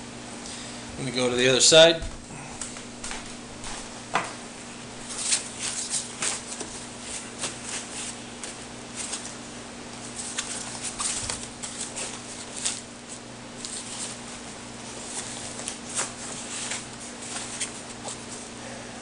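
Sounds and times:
hands rustling nylon fabric: 5.0 - 18.6.

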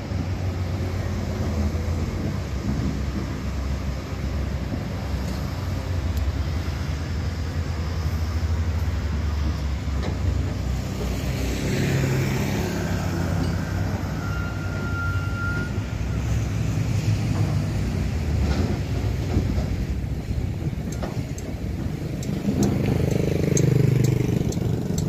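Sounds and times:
diesel truck engine rumbling: 0.0 - 25.0
thin high whistle: 13.6 - 16.4.

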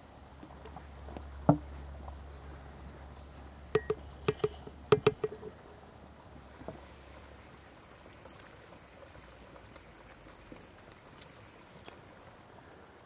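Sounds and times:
glassy clinks: 3.8 - 5.5
teapot lid knock: 3.8 - 5.5.

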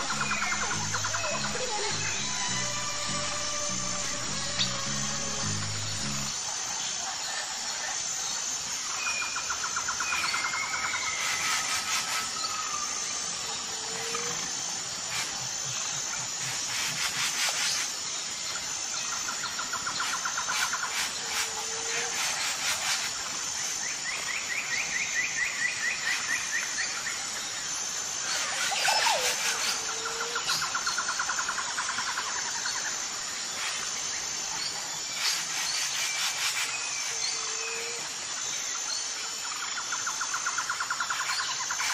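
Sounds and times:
birds trilling and calling: 0.0 - 6.3
pulsing insect buzz: 0.0 - 41.9.

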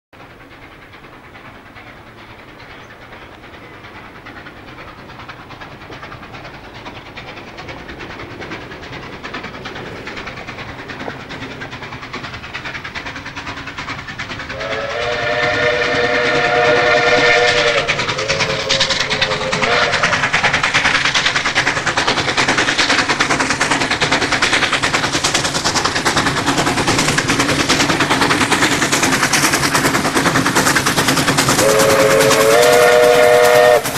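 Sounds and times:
steam locomotive exhaust beats: 0.2 - 33.9
steam whistle: 14.5 - 20.1, 31.6 - 33.9.

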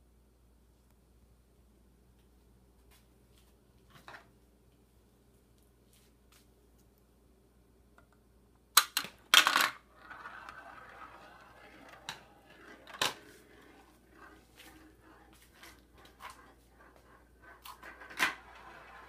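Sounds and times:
marbles clicking on plastic track: 8.8 - 14.4
marbles rolling in funnel: 8.9 - 19.0.

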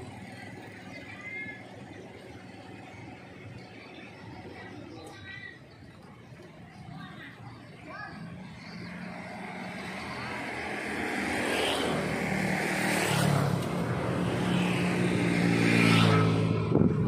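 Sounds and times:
vehicle engine approaching: 0.0 - 17.0
rushing passing noise: 8.2 - 17.0.

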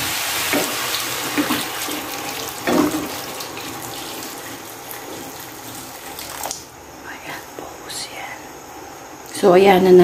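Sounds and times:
water pouring into a wok: 0.0 - 6.7.

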